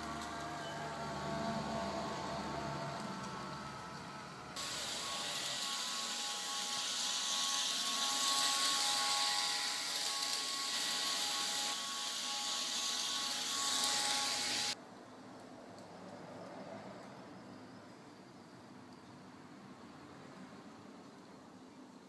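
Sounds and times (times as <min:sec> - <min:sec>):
model locomotive hiss and whine: 0:00.0 - 0:14.8.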